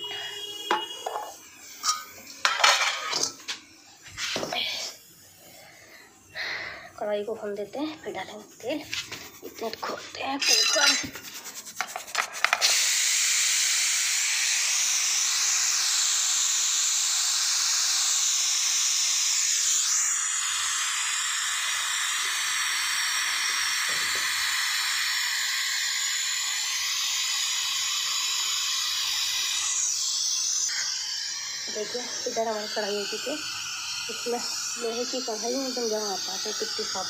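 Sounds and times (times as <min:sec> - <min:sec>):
pressure cooker steam hiss: 0:00.0 - 0:37.0.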